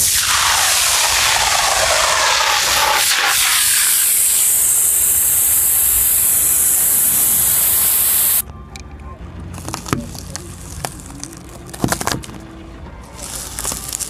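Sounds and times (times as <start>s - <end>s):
aerosol spray can hissing: 0.0s - 8.4s.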